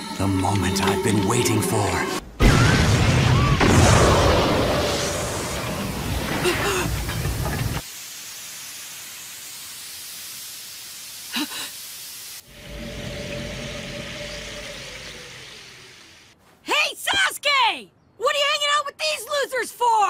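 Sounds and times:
loud rushing hiss: 6.9s - 16.4s.

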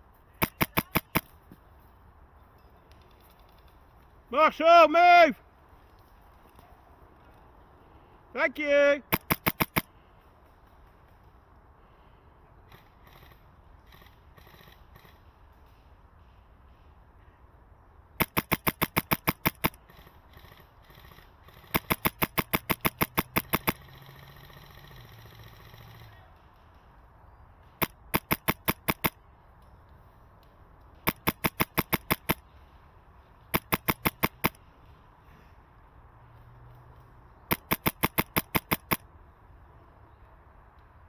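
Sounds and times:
airsoft rifle rapid shots: 0.4s - 1.3s, 9.0s - 9.9s, 18.2s - 26.7s, 27.7s - 29.2s, 31.0s - 32.4s, 33.5s - 34.6s, 37.5s - 39.0s.

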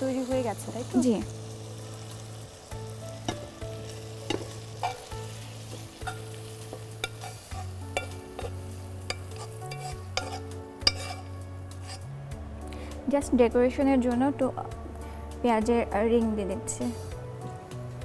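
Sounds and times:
low background music drone: 0.0s - 18.0s
spoon scraping a pan: 3.3s - 12.1s.

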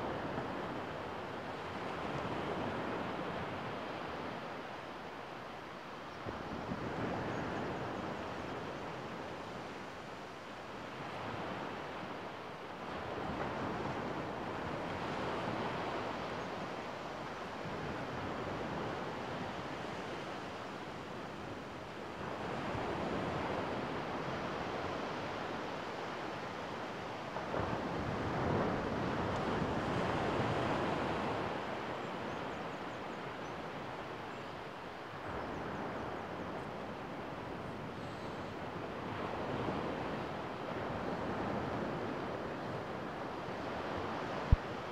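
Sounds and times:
wind on microphone: 35.1s - 44.9s.

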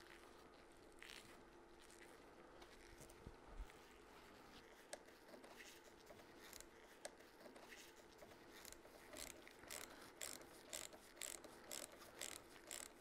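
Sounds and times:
ratchet wrench clicking: 9.2s - 13.0s.

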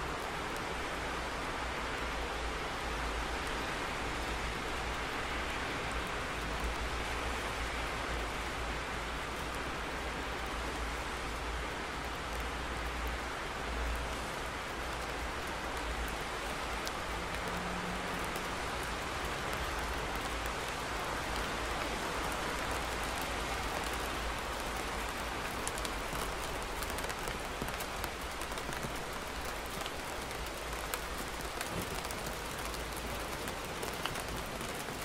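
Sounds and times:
heavy rain hiss: 0.0s - 35.0s
raindrop ticks: 11.2s - 35.0s.

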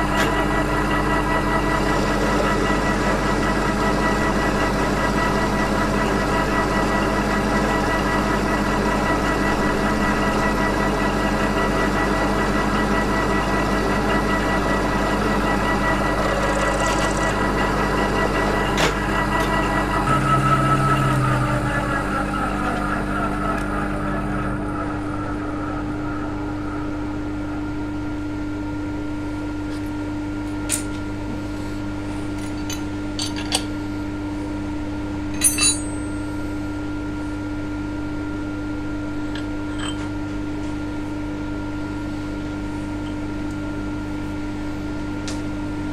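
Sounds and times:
milling machine humming: 0.0s - 45.9s
sharp metal clinks: 35.4s - 36.1s.

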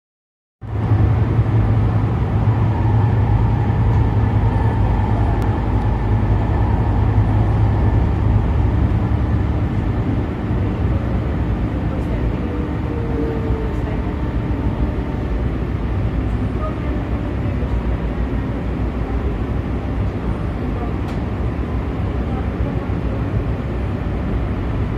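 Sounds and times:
train low rumble: 0.6s - 24.9s
faint whining tones: 1.4s - 17.8s.

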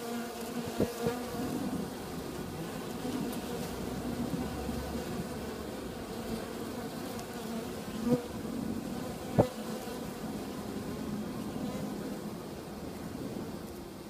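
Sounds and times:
honeybees buzzing: 0.0s - 14.0s.

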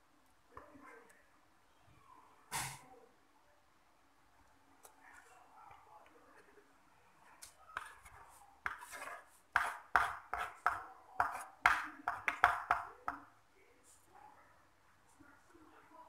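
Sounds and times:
metal spoon scraping wooden bowl: 7.8s - 10.6s.

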